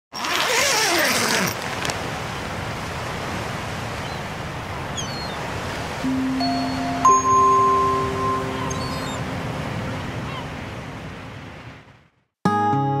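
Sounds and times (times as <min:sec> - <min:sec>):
sea surf rushing: 0:00.8 - 0:12.2
faint high chirp: 0:06.1 - 0:09.4.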